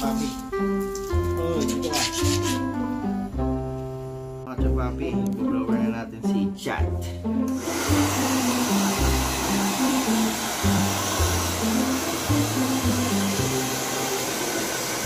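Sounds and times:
background music with bass line: 0.0 - 13.8
hair dryer blowing: 7.5 - 15.0.

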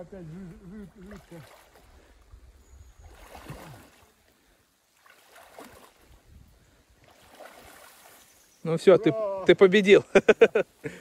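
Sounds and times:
boots sloshing in mud: 3.0 - 4.2, 4.9 - 6.3, 7.0 - 8.3
wind on microphone: 6.0 - 6.7.

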